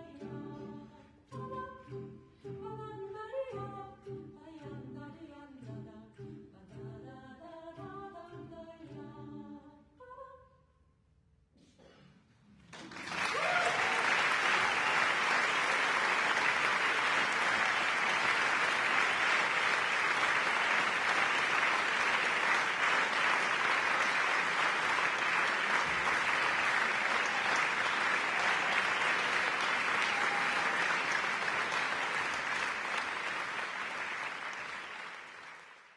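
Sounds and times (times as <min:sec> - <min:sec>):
audience applauding: 0:12.6 - 0:35.9.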